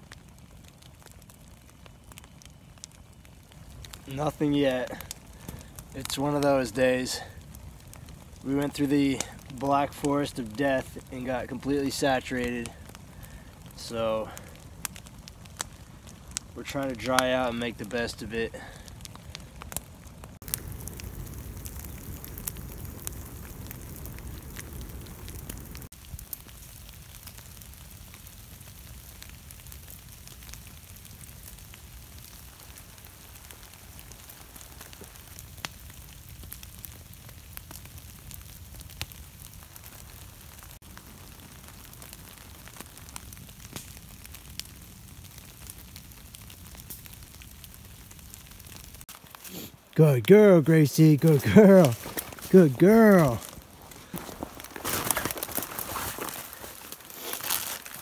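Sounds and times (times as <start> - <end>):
campfire crackling: 0.0 - 58.0
fire pops: 0.0 - 58.0
faint steady hiss: 1.8 - 19.4
water drops on wet leaves: 18.6 - 58.0.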